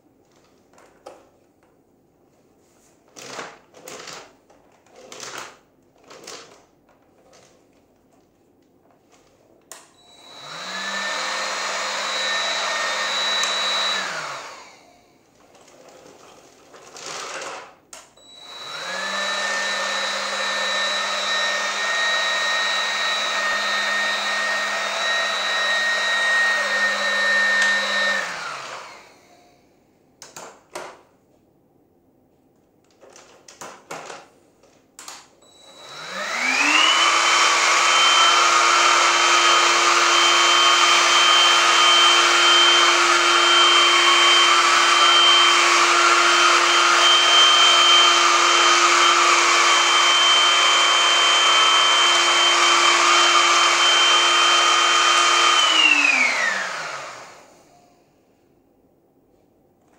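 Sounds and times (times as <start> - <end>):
stick vacuum motor whining: 10.0 - 14.8, 18.2 - 29.3, 35.4 - 57.8.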